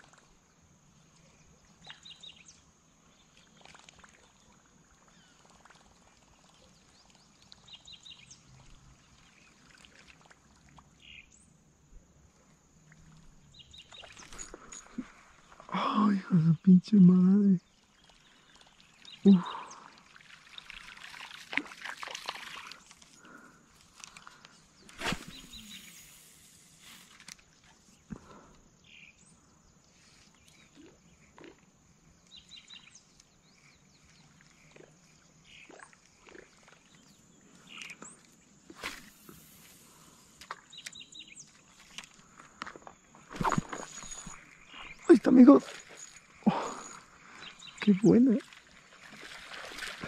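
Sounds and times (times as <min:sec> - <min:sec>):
fishing rod and reel handling: 0:23.8 - 0:28.0
bird chirps: 0:24.8 - 0:26.2, 0:43.1 - 0:48.4.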